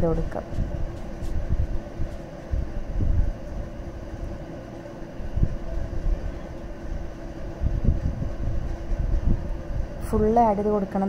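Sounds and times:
faint hum: 0:00.0 - 0:11.0
low rumble: 0:05.2 - 0:10.8.

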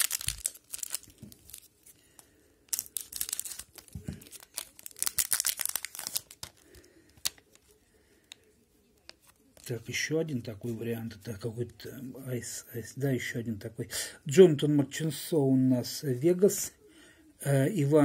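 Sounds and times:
foil wrapper crinkling and tearing: 0:00.0 - 0:07.7
cards clicking: 0:02.7 - 0:07.7.

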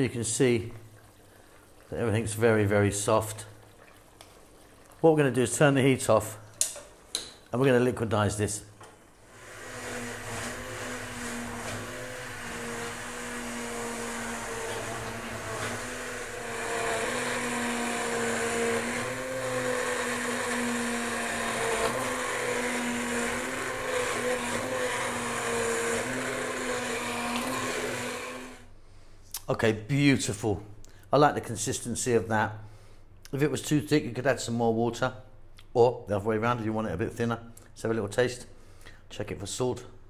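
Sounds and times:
immersion blender running: 0:09.2 - 0:28.7.

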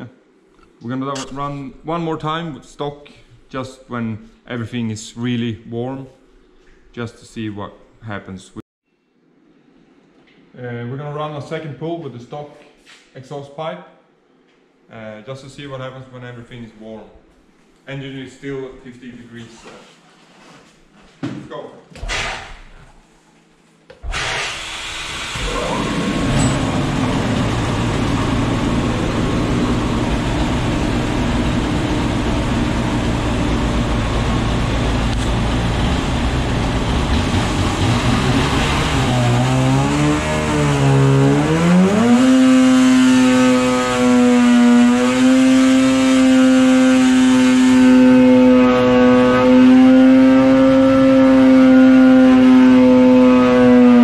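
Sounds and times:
snowmobile engine revving: 0:24.1 - 0:54.0.

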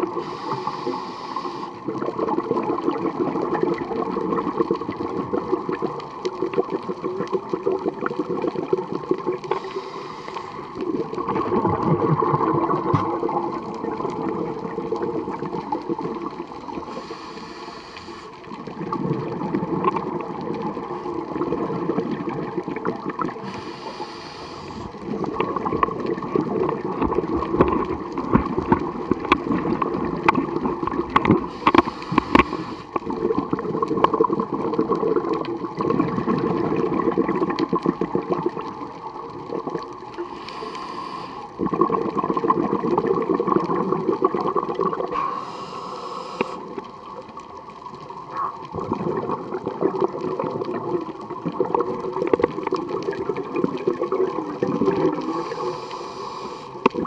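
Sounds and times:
scuba regulator hissing inhale: 0:00.0 - 0:01.9, 0:09.4 - 0:10.8, 0:16.7 - 0:18.5, 0:23.3 - 0:25.4, 0:31.4 - 0:33.1, 0:40.2 - 0:41.6, 0:45.1 - 0:46.8, 0:55.2 - 0:56.9
gurgling exhaust bubbles: 0:10.8 - 0:16.4, 0:18.7 - 0:23.4, 0:24.8 - 0:40.0, 0:41.6 - 0:45.1, 0:48.7 - 0:55.7.

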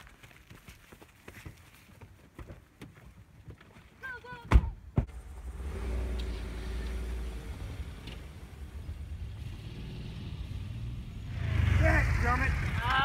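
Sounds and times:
tyres on dirt: 0:00.0 - 0:13.0
vehicle engine rumble: 0:05.0 - 0:13.0.

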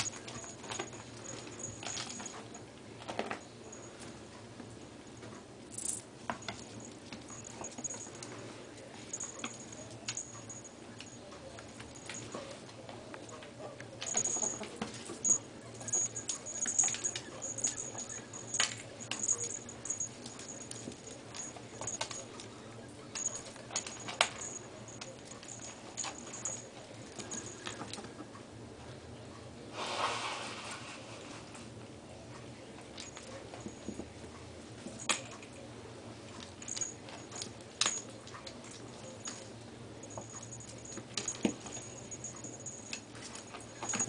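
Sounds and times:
ferrets scuffling with clicks: 0:05.2 - 0:28.4
short hissing burst: 0:29.8 - 0:30.8.

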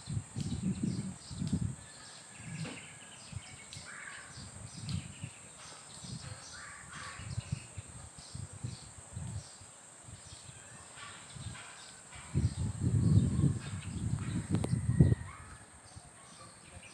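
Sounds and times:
steady high hiss: 0:00.0 - 0:16.9
low microphone rumbles: 0:12.3 - 0:15.3.

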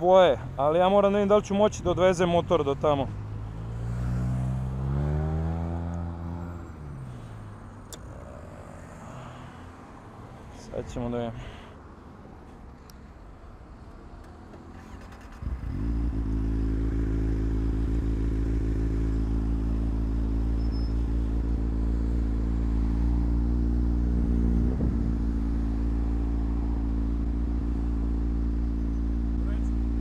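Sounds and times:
motorcycle engine starting and running: 0:14.2 - 0:30.0.

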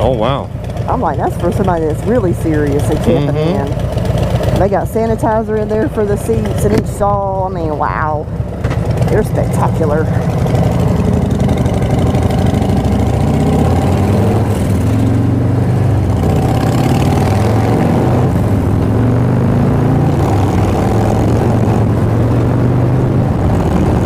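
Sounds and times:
second motorcycle riding: 0:00.0 - 0:07.5, 0:08.2 - 0:24.0
motorcycle engine accelerating: 0:00.0 - 0:24.0
wind noise: 0:20.1 - 0:24.0.

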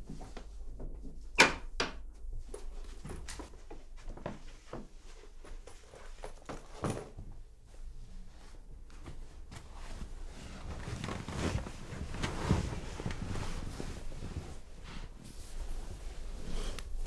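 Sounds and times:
bedclothes rustling: 0:02.6 - 0:17.0.

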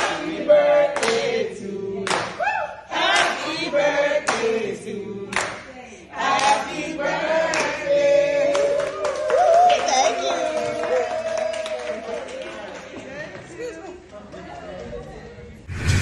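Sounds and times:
group singing a celebration song: 0:00.0 - 0:09.1
hand claps: 0:01.0 - 0:01.3, 0:02.0 - 0:02.4, 0:04.2 - 0:04.5, 0:05.3 - 0:05.7.

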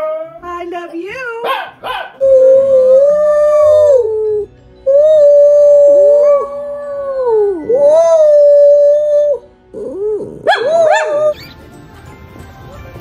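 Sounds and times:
small dog howling: 0:01.8 - 0:11.4.

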